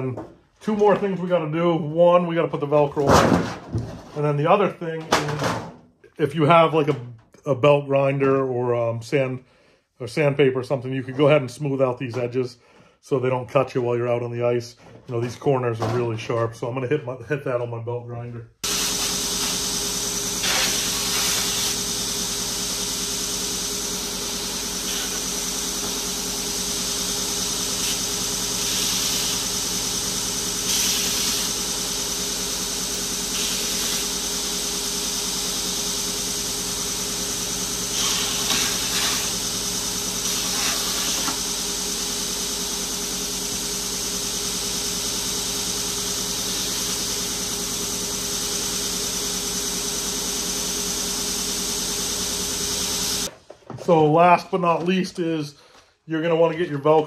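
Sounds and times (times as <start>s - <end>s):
belt grinder running: 18.6s - 53.3s
grinding hiss of metal on belt: 33.3s - 34.1s, 37.9s - 39.4s.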